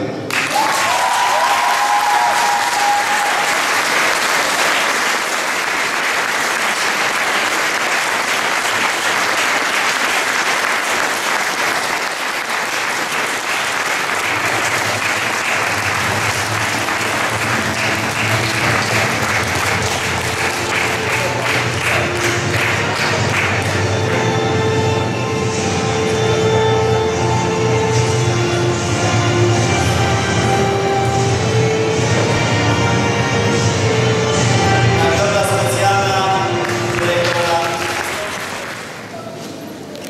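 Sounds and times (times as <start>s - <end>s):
audience applauding: 0.2s - 24.2s, 36.5s - 40.0s.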